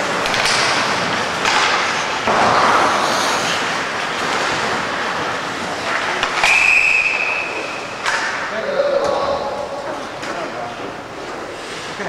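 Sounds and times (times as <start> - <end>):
hockey sticks and puck knocking: 0.0 - 9.2
skates scraping ice: 0.0 - 12.0
referee's whistle long blast: 6.4 - 7.7.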